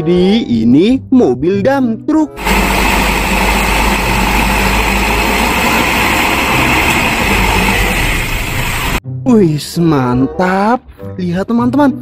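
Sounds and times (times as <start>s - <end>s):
diesel truck engine running: 2.4s - 9.0s
hydraulic tipper raising: 2.4s - 9.0s.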